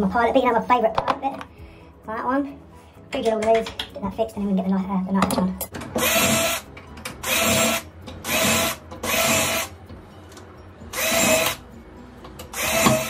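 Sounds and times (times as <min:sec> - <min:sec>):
cordless drill bursts: 0:06.0 - 0:06.6, 0:07.2 - 0:09.7, 0:10.9 - 0:11.6, 0:12.5 - 0:13.0.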